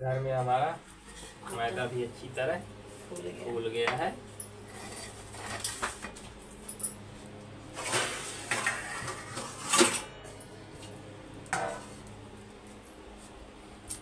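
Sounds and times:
metal utensils clattering: 7.8 - 10.2.

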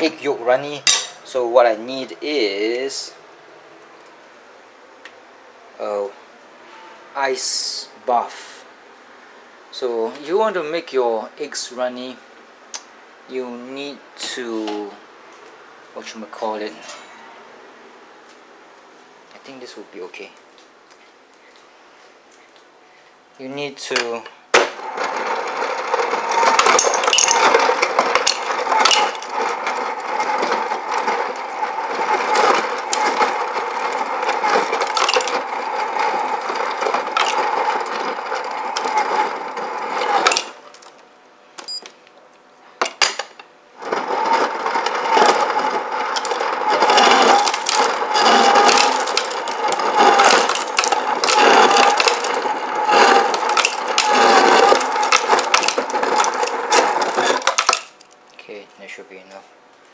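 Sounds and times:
dispenser motor running: 24.0 - 41.0, 42.8 - 58.3
ice clattering into mug: 24.8 - 40.6, 43.8 - 58.1.

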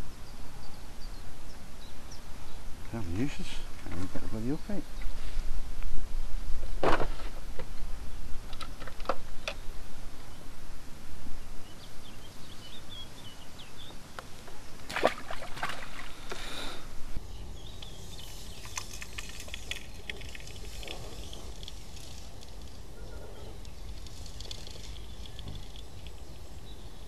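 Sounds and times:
bird chirps: 17.2 - 22.2.

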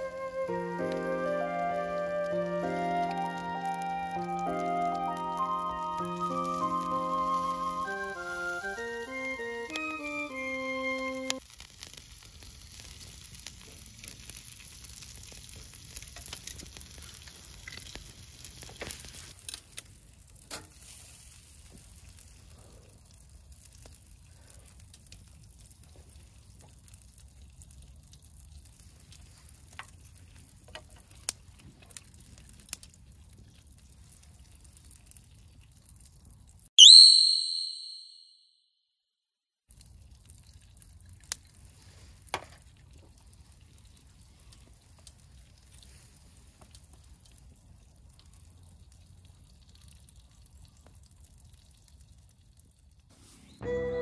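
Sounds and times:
meat sizzling on a grill: 6.0 - 8.9, 11.4 - 27.8.

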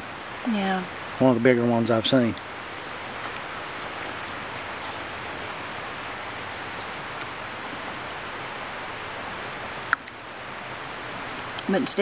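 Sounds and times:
woodland background noise: 0.0 - 12.0
faint high bird chirps: 4.8 - 7.5.

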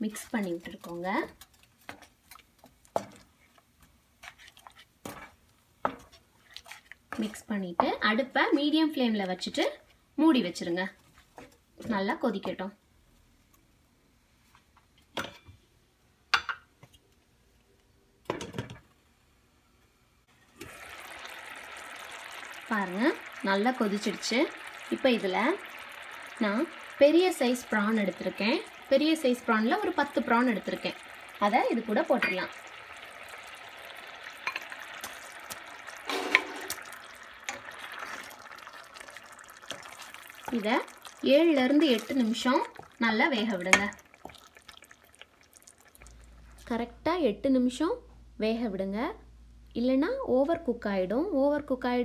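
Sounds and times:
curry bubbling in a pan: 20.4 - 46.8
prawns splashing into curry: 20.6 - 46.7
glass lid clinking on pot: 32.2 - 32.5.

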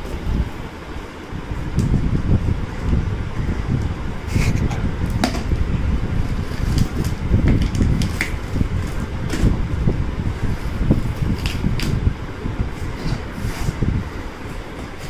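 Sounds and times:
steady low rumble: 0.0 - 15.0
knife cutting packing tape: 11.3 - 12.0.

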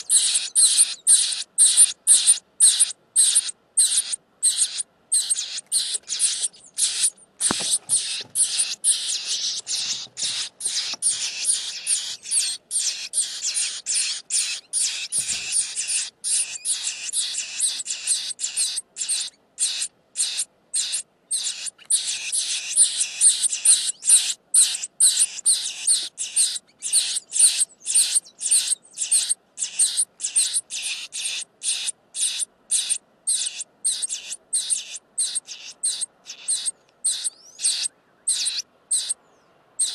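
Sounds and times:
nestling birds begging calls: 0.0 - 39.9.

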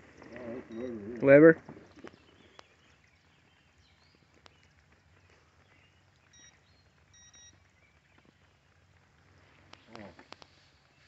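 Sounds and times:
faint high chirps: 0.4 - 1.0, 5.6 - 8.4
faint ticks: 1.9 - 10.8.

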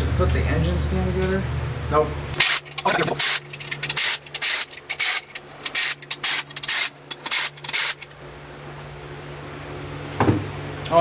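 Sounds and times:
impact wrench hammering: 2.4 - 8.1.

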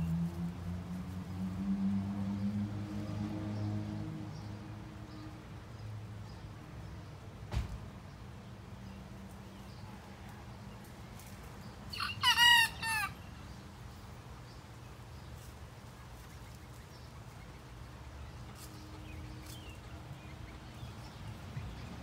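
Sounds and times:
young rooster crowing: 11.9 - 13.3.

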